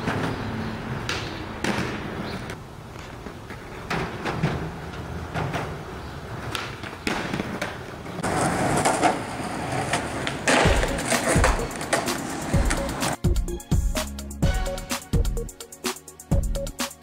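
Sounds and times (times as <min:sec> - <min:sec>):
skateboard clacks: 0:00.0 - 0:13.2
skateboard wheels rolling on pavement: 0:00.0 - 0:13.2.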